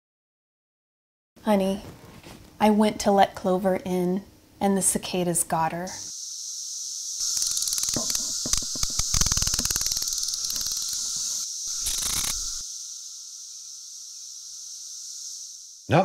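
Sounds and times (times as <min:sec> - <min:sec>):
pulsing cicada buzz: 0:05.6 - 0:16.0
cicada chorus drone: 0:05.7 - 0:16.0.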